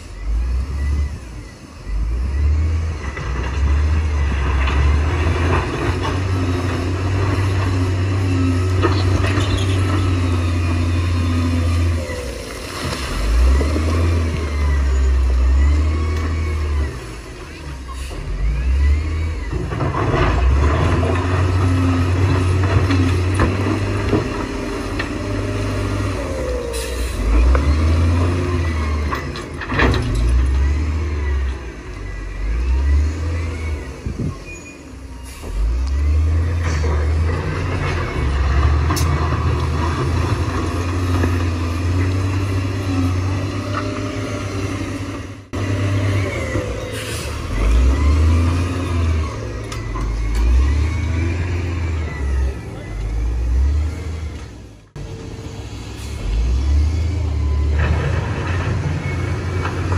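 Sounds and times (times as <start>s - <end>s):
heavy diesel engines revving: 0.0s - 59.9s
metallic squeals: 8.1s - 12.4s.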